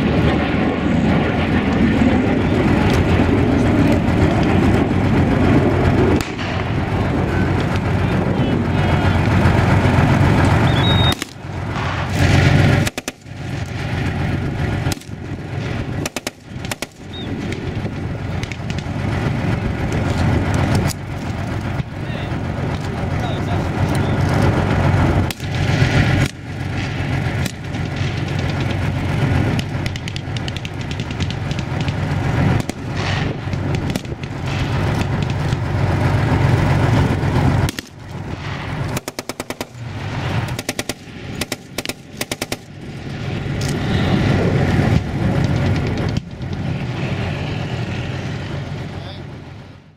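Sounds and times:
diesel engine rumbling: 0.0 - 49.9
automatic gunfire bursts: 39.0 - 39.8, 40.5 - 42.7.

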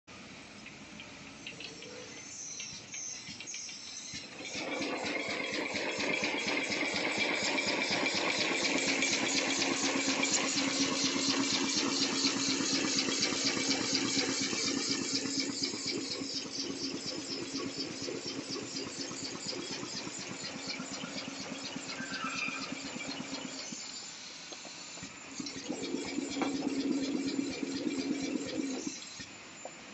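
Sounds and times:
motor hum: 0.7 - 29.9
wrapping machine clatter: 4.4 - 21.6.

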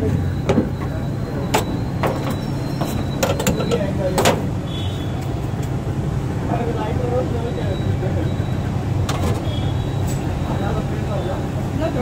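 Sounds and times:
metal knocks and clicks: 1.5 - 4.5.

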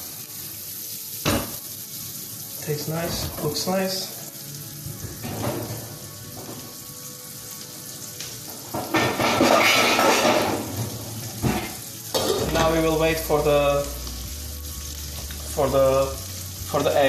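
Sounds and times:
kitchen clatter: 1.2 - 1.6, 5.0 - 6.6, 8.7 - 12.9.

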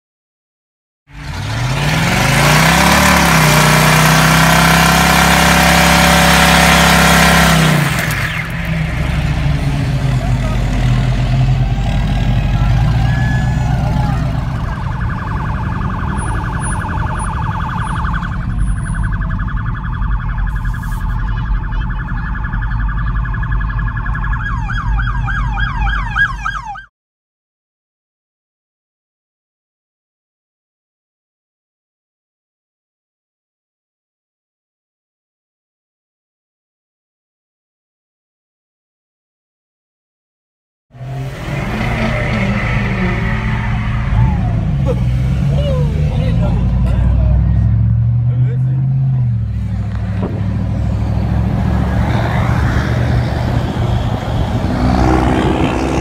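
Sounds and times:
engines at high revs: 1.1 - 18.4, 40.9 - 56.0.

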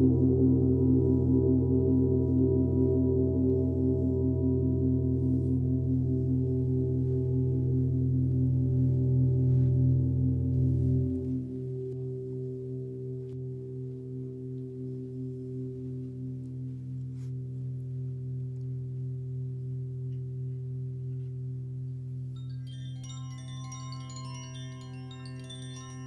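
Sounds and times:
deep wavering metallic hum: 0.0 - 26.0
wind chimes tinkling: 22.4 - 26.0.

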